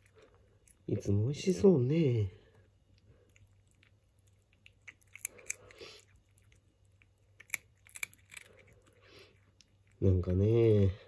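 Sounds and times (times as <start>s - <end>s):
cat crunching dry kibble: 3.1s - 10.4s.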